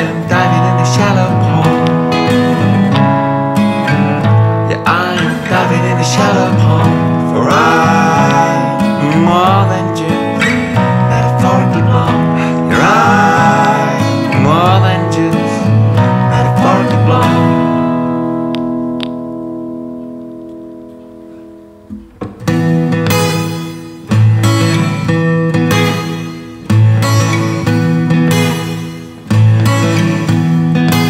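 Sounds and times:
guitar music: 0:00.0 - 0:31.0
indie band music: 0:00.0 - 0:31.0.

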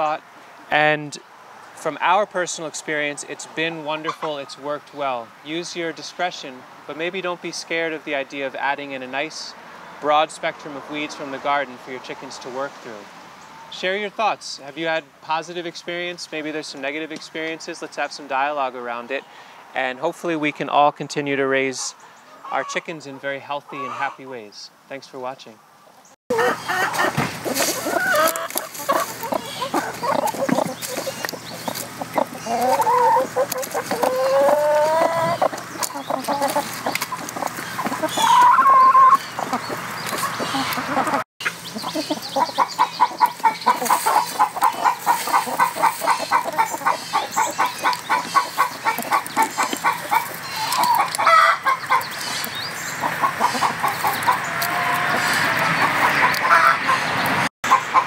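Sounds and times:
hens clucking: 0:02.0 - 0:06.2, 0:21.7 - 0:24.5, 0:26.3 - 0:58.0.

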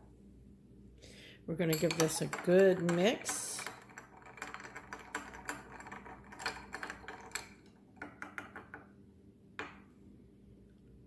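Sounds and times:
spoon clinking ice and glass: 0:01.6 - 0:07.5.

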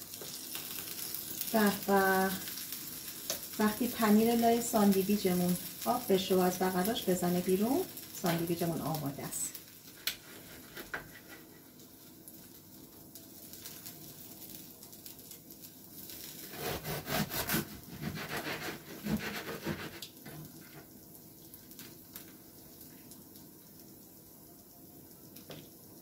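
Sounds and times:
bread knife sawing through sandwich: 0:16.4 - 0:20.0.

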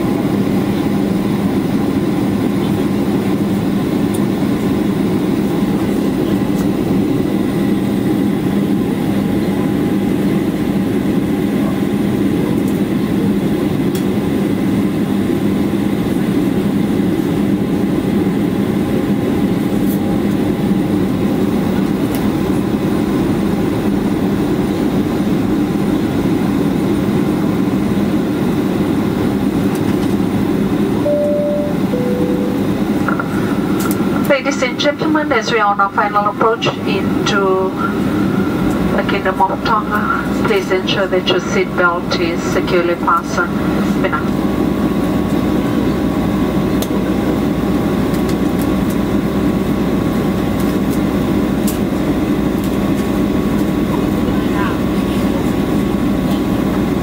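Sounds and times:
airliner cabin engine noise: 0:00.0 - 0:57.0
two-note falling chime: 0:31.1 - 0:33.0.

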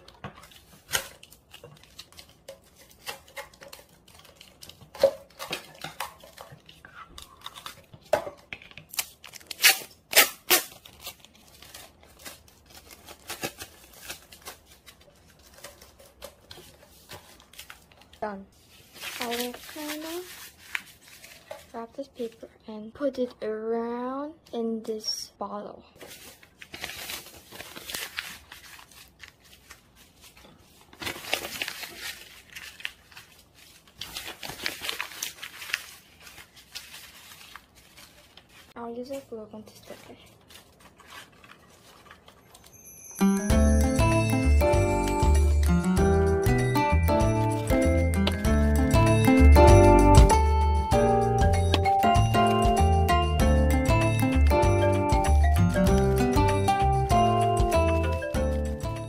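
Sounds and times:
tape crinkling: 0:00.0 - 0:22.4, 0:26.0 - 0:43.4
tape ripping off roll: 0:08.8 - 0:11.2
paper tearing and crumpling: 0:08.9 - 0:21.9, 0:26.0 - 0:42.8.

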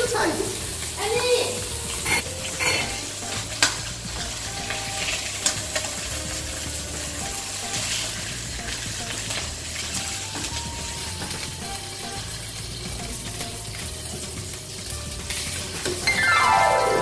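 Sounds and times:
fish sizzling in a pan: 0:00.0 - 0:17.0
spatula scraping and knocking pan: 0:01.7 - 0:11.6.

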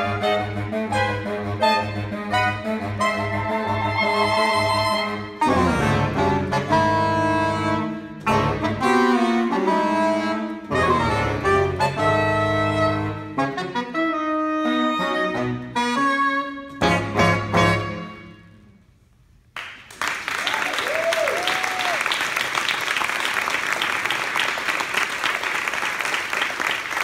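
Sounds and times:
saxophone quartet playing: 0:00.0 - 0:19.0.

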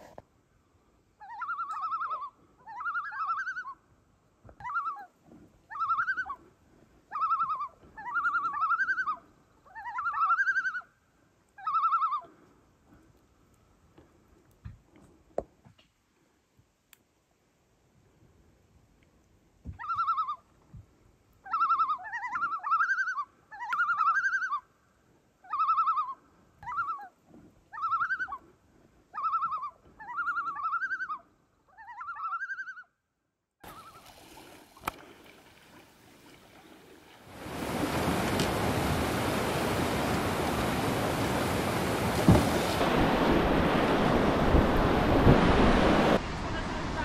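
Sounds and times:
loons calling: 0:01.2 - 0:03.8, 0:04.6 - 0:05.1, 0:05.7 - 0:06.4, 0:07.1 - 0:10.9, 0:11.6 - 0:12.3, 0:19.8 - 0:20.5, 0:21.4 - 0:24.6, 0:25.4 - 0:28.5, 0:29.1 - 0:32.9
fast river water rushing: 0:36.3 - 0:47.0.

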